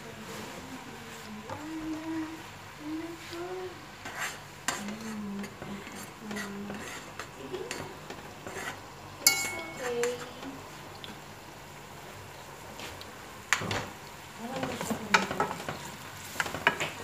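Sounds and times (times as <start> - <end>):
onions sizzling faintly: 0.0 - 17.0
spoon scraping and clinking pot: 8.4 - 10.3.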